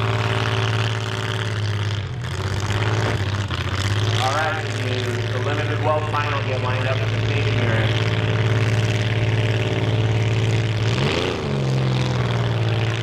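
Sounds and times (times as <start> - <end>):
car engine running at high revs: 0.0 - 13.0.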